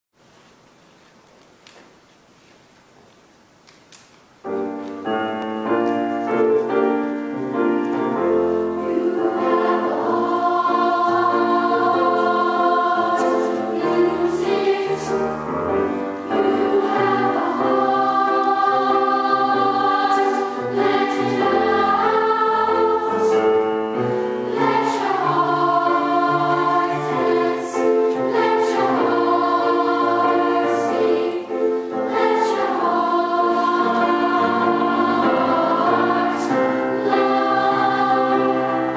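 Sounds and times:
children's choir singing: 4.5 - 38.9.

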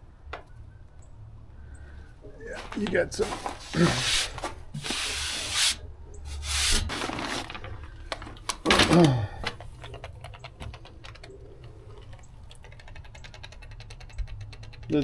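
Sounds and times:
hand sweeping debris rustle: 2.5 - 7.7.

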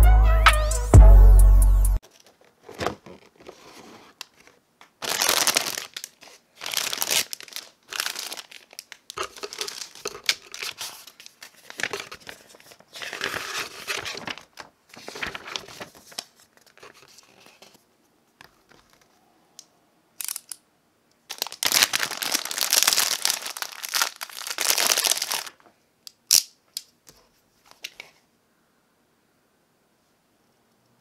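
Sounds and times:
cardboard and paper rustling: 2.0 - 17.8.

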